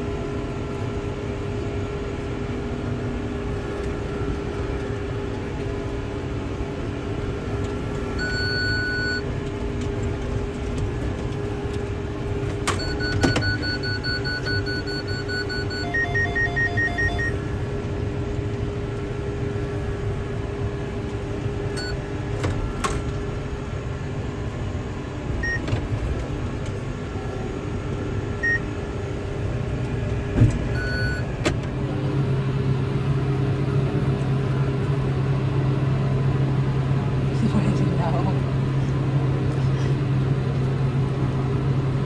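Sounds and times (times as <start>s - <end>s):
tractor running: 0.0s - 42.0s
short electronic beeps: 8.1s - 9.2s, 12.8s - 17.4s, 30.7s - 31.3s.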